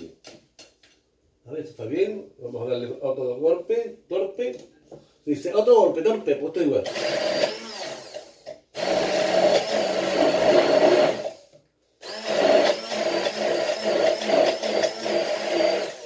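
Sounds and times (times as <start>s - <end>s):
stick blender whining: 6.8s - 16.0s.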